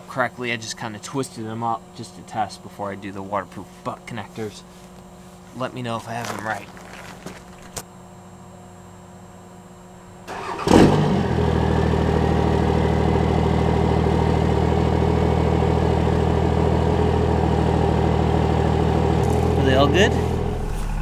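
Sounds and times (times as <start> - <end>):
truck engine starting and idling: 10.3 - 21.0.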